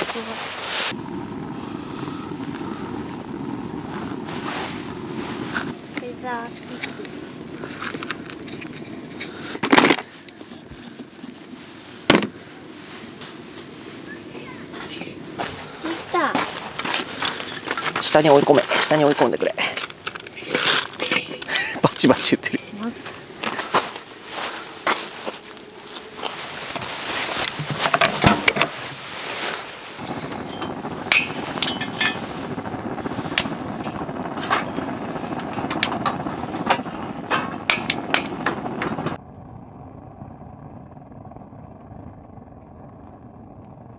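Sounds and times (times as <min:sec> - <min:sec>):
fire crackling and popping: 0:00.0 - 0:43.9
fire rushing: 0:00.0 - 0:43.9
firewood knocking in metal bowl: 0:26.7 - 0:29.0, 0:30.2 - 0:32.4, 0:33.3 - 0:39.2.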